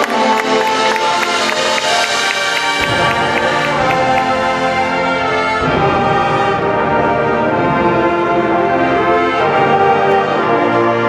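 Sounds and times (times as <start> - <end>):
marching band brass chords: 0.0 - 11.0.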